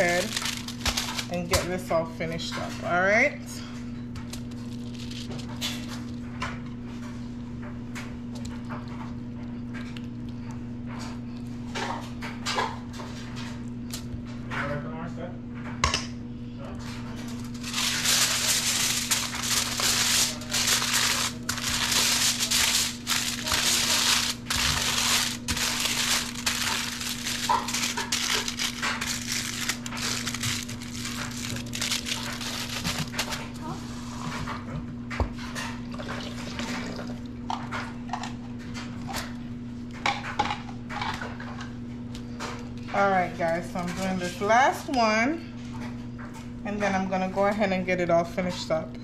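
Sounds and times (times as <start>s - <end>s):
aluminium foil crinkling: 0.0s - 2.8s, 4.2s - 6.4s, 17.2s - 33.7s.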